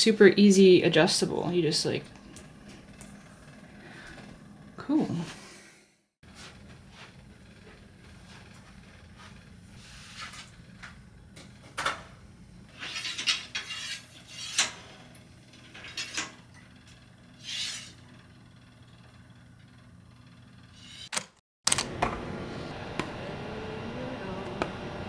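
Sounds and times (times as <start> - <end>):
metal stand scraping and knocking: 12.7 - 16.5.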